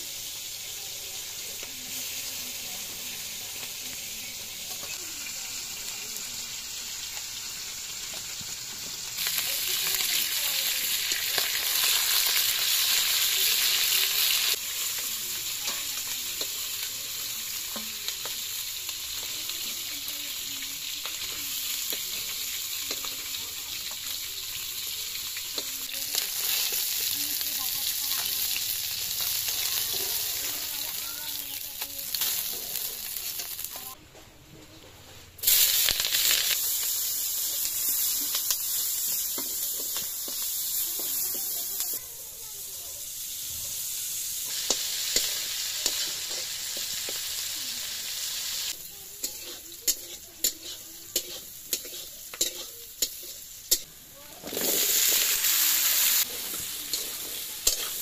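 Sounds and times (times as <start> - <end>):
fish frying in hot oil: 0.0 - 34.0, 35.4 - 58.0
metal spatula scraping and clinking: 49.2 - 55.3, 56.2 - 58.0.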